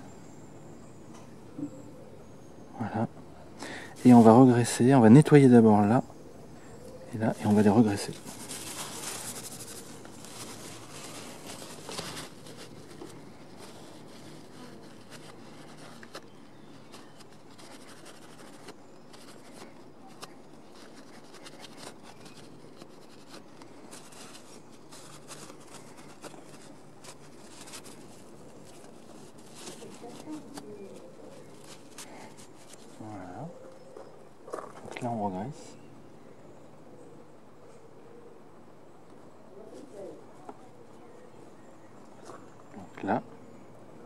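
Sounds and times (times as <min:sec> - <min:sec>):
paper towel rubbing metal: 0:07.4 - 0:33.0.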